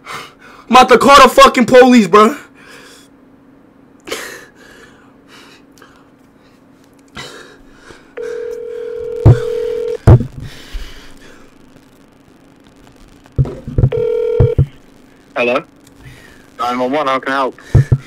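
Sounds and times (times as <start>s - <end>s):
phone ringing tone: 8.2s - 10.0s, 13.9s - 14.7s
loud thumps: 9.2s - 10.5s, 13.3s - 14.8s, 17.7s - 18.0s.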